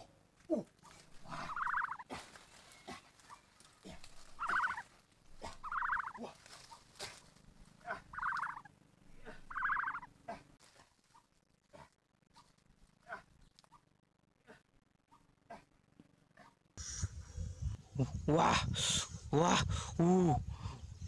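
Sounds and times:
ostrich chick trilled calls: 0:01.2 - 0:02.1, 0:04.3 - 0:04.9, 0:05.5 - 0:06.2, 0:08.0 - 0:08.7, 0:09.4 - 0:10.1.

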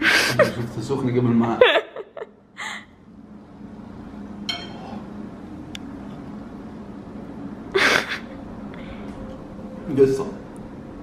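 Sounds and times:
fork clinking on ceramic plate: 0:04.5 - 0:04.8.

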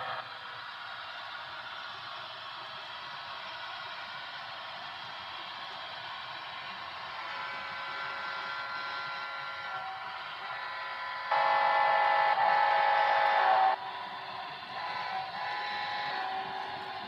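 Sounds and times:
diesel engine sound: 0:00.0 - 0:17.0
loud horn blast: 0:07.2 - 0:13.8, 0:14.8 - 0:16.7.

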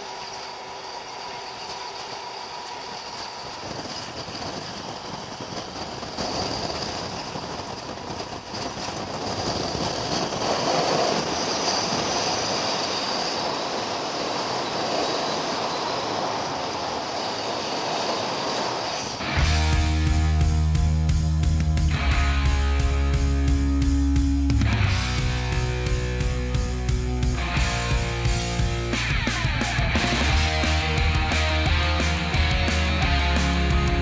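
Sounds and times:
music: 0:19.2 - 0:34.0.

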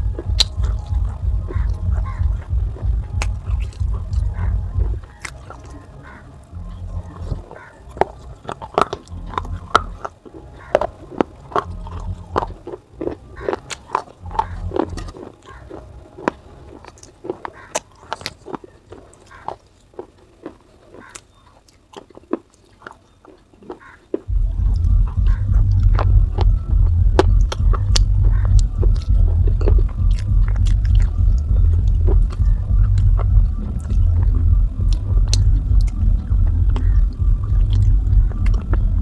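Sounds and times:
loud low rumble: 0:00.0 - 0:08.4, 0:11.6 - 0:12.6, 0:14.2 - 0:15.1, 0:24.3 - 0:39.0
clay pieces crunched in mouth: 0:07.1 - 0:24.3.

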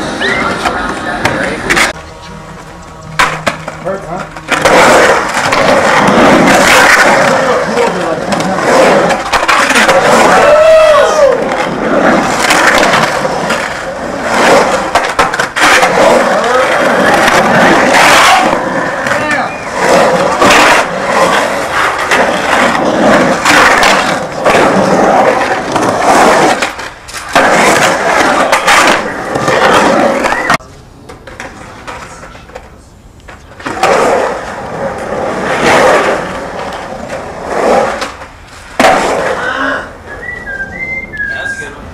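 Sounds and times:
skateboard clacks: 0:00.0 - 0:02.0, 0:03.2 - 0:39.5
skateboard wheels rolling on concrete: 0:00.0 - 0:41.9.

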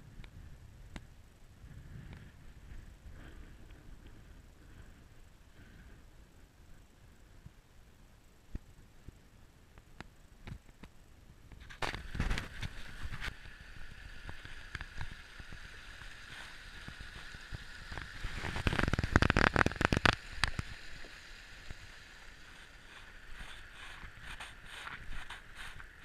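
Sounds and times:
footsteps on rocky trail: 0:22.6 - 0:26.0.

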